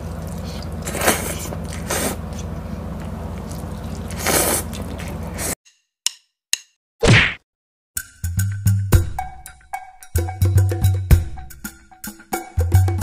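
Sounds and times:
people slurping noodles: 0:00.2 - 0:02.5, 0:03.4 - 0:05.6.

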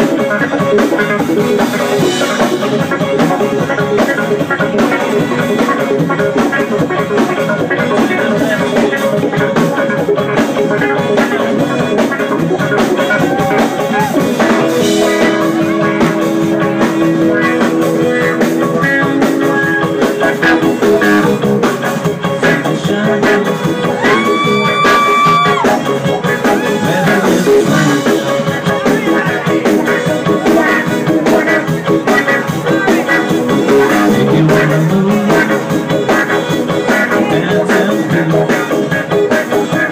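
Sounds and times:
live rock band playing: 0:00.0 - 0:39.9.

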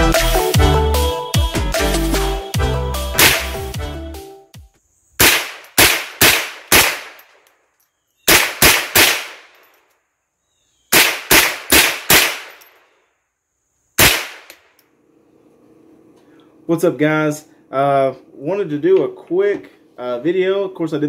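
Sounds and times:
rifle shots: 0:03.2 - 0:03.6, 0:05.2 - 0:07.4, 0:08.3 - 0:09.7, 0:10.9 - 0:12.8, 0:14.0 - 0:14.7.

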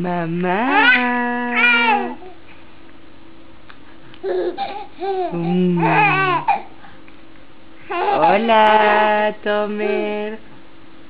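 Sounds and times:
woman calling: 0:05.3 - 0:06.4, 0:08.0 - 0:10.4.

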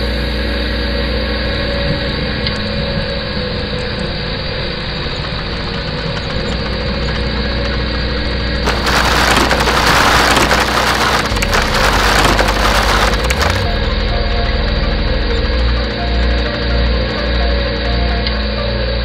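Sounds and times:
loud clattering: 0:08.6 - 0:13.8
machinery low hum: 0:08.6 - 0:19.0.

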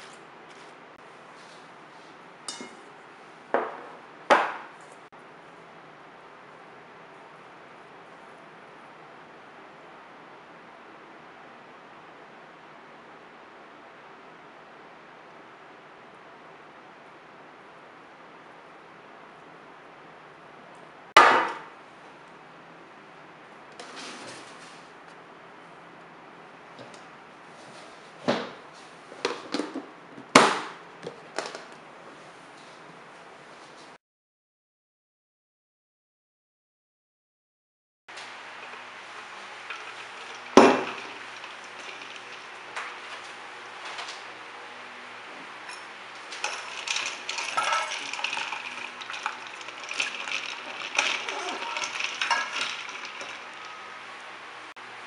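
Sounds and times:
ice cubes clinking: 0:38.6 - 0:43.0, 0:45.7 - 0:53.9
bowl set down in metal bowl: 0:45.7 - 0:53.6.

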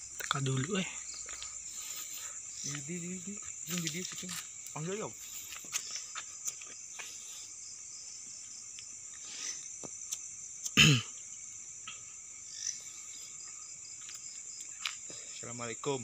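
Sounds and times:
crickets chirring: 0:00.0 - 0:16.0
person grunting or coughing: 0:10.8 - 0:11.1.

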